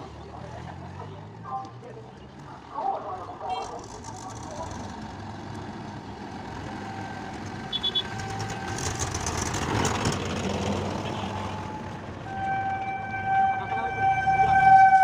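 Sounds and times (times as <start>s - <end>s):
tractor diesel engine: 0.0s - 15.0s
short high beeps: 7.7s - 8.2s.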